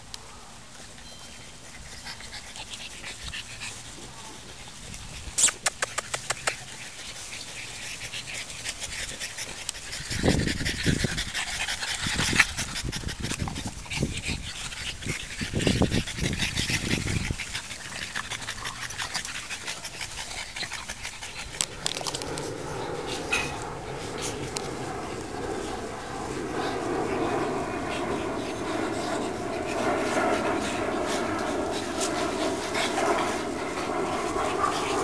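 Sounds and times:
sharp clicks: 5.4s - 6.6s
heavy dog breathing: 6.6s - 35.0s.

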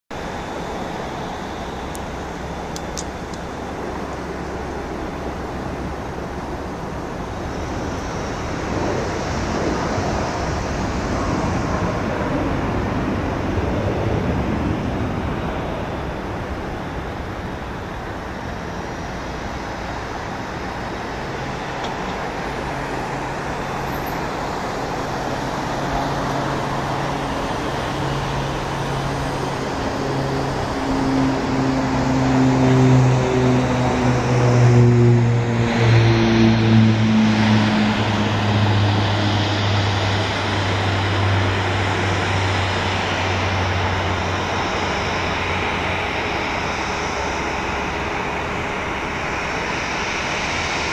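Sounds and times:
distant turboprop rushing noise: 0.1s - 50.9s
low propeller hum: 0.1s - 50.9s.

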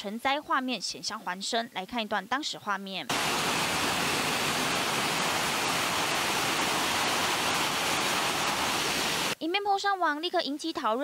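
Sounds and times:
floodwater rushing down stairs: 3.1s - 9.4s.

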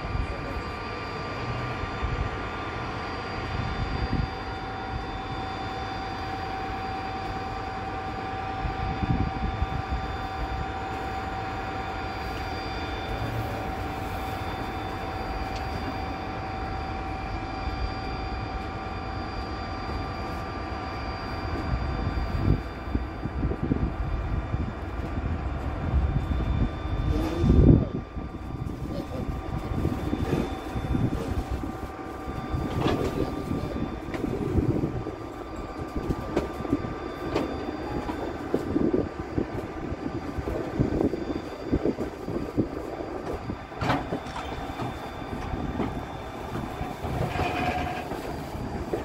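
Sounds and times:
high ringing tone: 0.0s - 49.0s
train wheels rumbling on rails: 0.0s - 49.0s
wind gusting on microphone: 3.4s - 4.6s, 8.5s - 11.0s, 21.6s - 49.0s.

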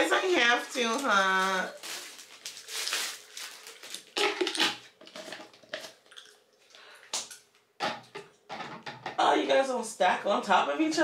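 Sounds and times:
plastic wrapping crinkling: 0.0s - 6.2s
plastic canister knocks and clicks: 7.8s - 9.2s.

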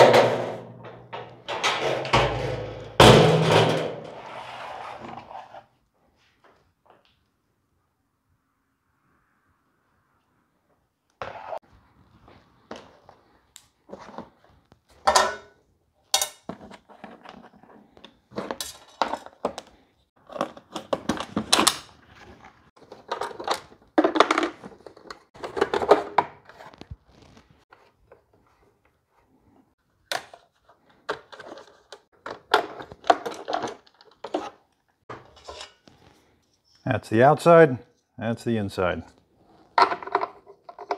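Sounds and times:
knocks and clunks of machine parts: 0.0s - 4.2s.

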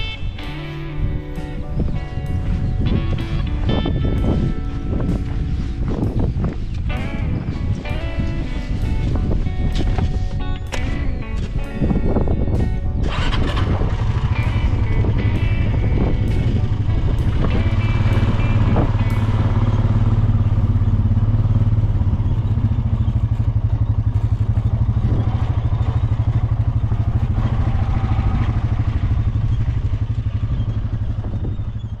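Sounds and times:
quad bike engine running: 0.0s - 32.0s.

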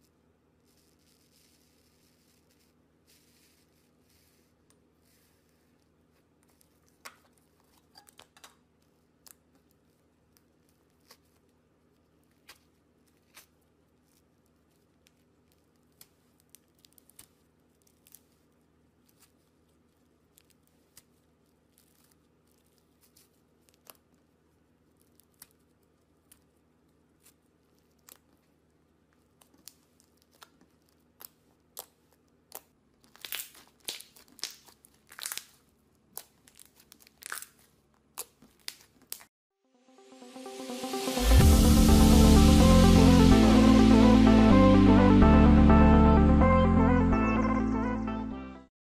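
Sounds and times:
slime crackling and popping: 29.2s - 39.3s.

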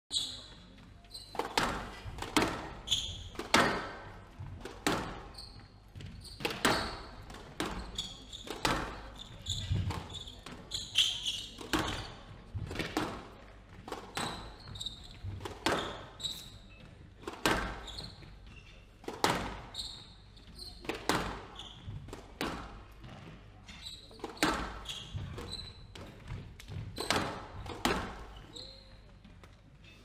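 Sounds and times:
shoes squeaking on wooden floor: 0.1s - 30.0s
squash ball hits: 1.3s - 5.4s, 6.0s - 16.5s, 17.2s - 18.3s, 19.0s - 19.8s, 20.8s - 23.2s, 24.2s - 28.5s.

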